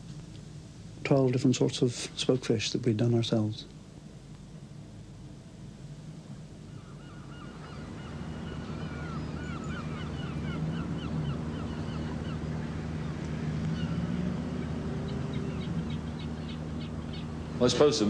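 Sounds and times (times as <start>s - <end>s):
steady low drone: 4.6s - 18.0s
gulls calling: 6.5s - 18.0s.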